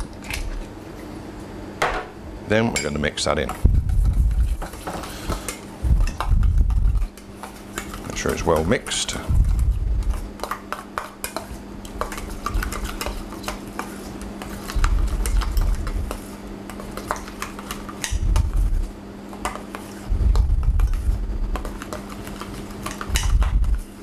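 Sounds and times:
metal spoon stirring in steel bowl: 0:02.8 - 0:18.6
dull low thumps: 0:03.6 - 0:04.5, 0:05.8 - 0:07.0, 0:09.3 - 0:10.0, 0:20.1 - 0:21.4, 0:23.1 - 0:23.8.

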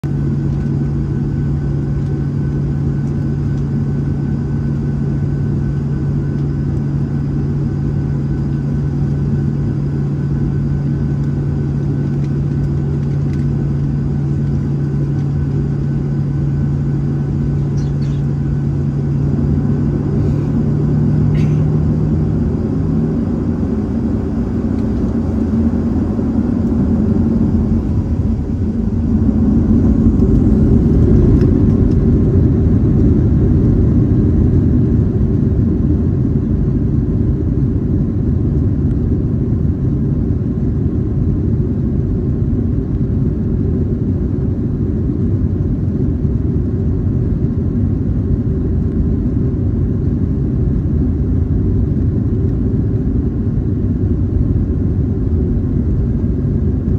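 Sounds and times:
jet engines and rolling wheels rumble: 0:00.0 - 0:56.9.

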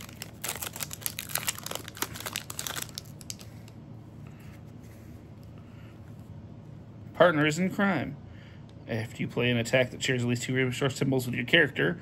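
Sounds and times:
wrapper crinkling and tearing: 0:00.0 - 0:03.7.

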